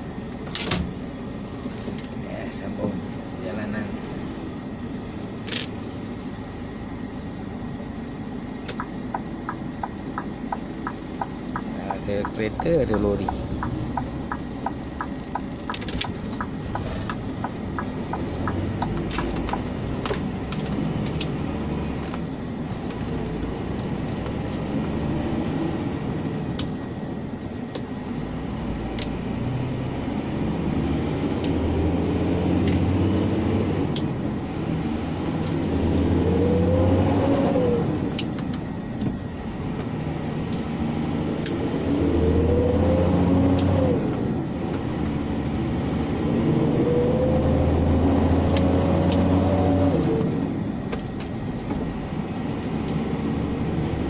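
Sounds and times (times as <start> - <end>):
truck diesel engine: 0.0 - 54.0
quick regular ticking: 8.8 - 19.7.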